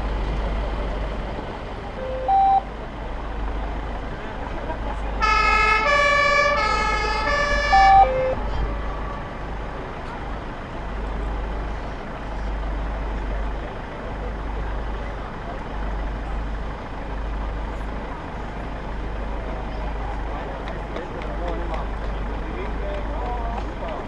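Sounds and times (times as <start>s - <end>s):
brief single siren tones: 2.0s - 2.7s, 6.9s - 9.3s
two-tone fire engine siren: 5.2s - 9.6s.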